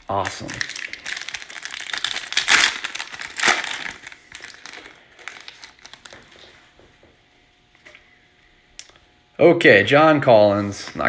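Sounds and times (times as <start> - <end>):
foil wrapper tearing and crinkling: 0.1 - 6.5.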